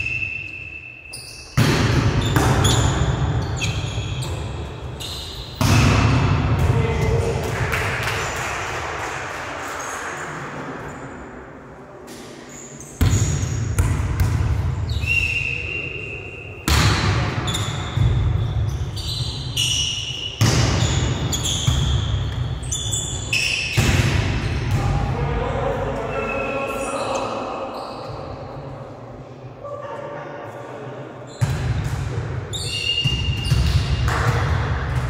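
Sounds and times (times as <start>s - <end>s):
sneakers squeaking on court: 2.2s - 5.7s, 12.5s - 15.0s, 17.4s - 23.9s, 32.5s - 34.2s.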